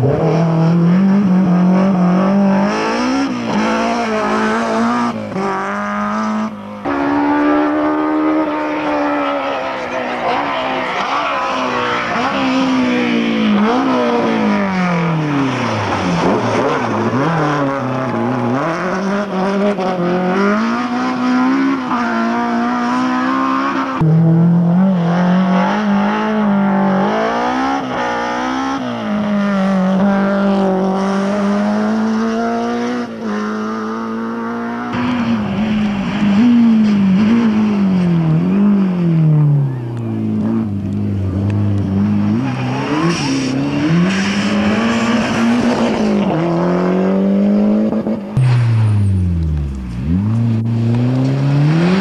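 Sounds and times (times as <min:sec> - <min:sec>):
rally car engine revving: 0:00.0 - 0:52.0.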